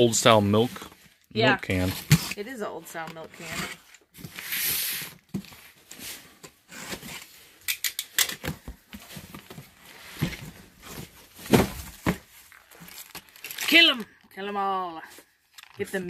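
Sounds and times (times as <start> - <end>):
cardboard clicks and rustles: 8.4 - 13.9
dull thump of cardboard: 11.4 - 12.3.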